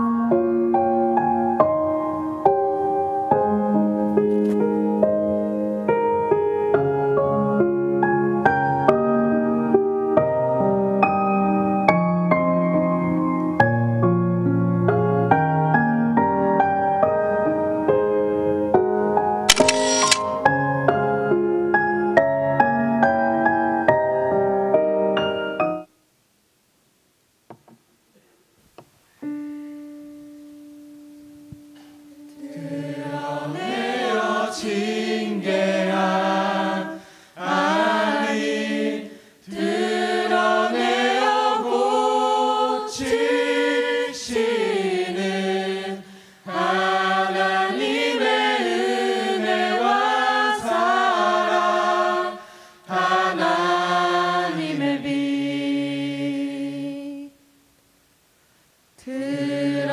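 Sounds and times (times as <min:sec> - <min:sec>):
mixed choir singing: 0:32.2 - 0:57.3, 0:59.0 - 0:59.9.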